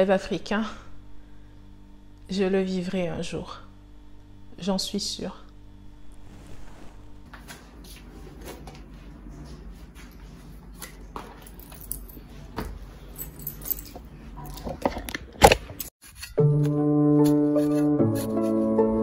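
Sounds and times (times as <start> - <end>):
music with held notes: 16.4 - 19.0.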